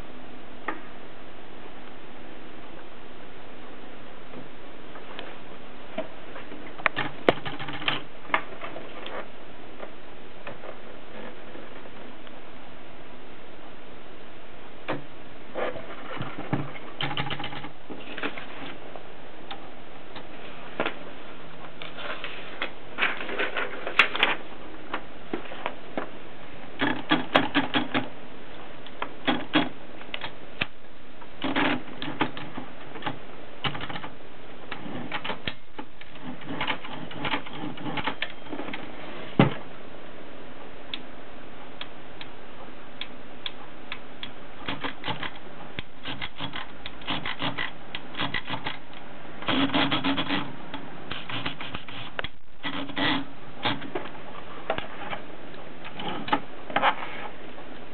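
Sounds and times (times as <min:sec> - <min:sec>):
manual typewriter clacking: 0:06.9 - 0:08.1, 0:17.0 - 0:17.7, 0:26.8 - 0:28.1, 0:31.4 - 0:34.1, 0:34.7 - 0:38.4, 0:44.6 - 0:45.4, 0:46.0 - 0:48.8, 0:49.4 - 0:50.5.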